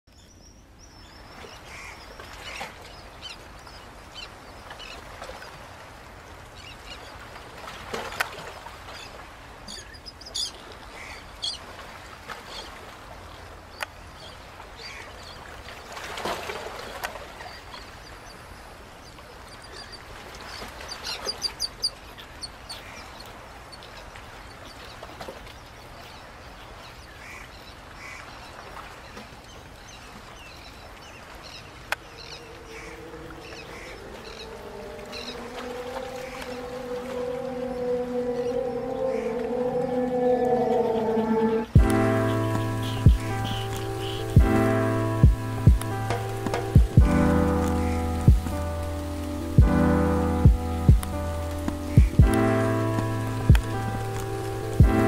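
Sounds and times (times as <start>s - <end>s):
birds calling sharp notes: 31.9s - 55.0s
steady background rush: 32.5s - 55.0s.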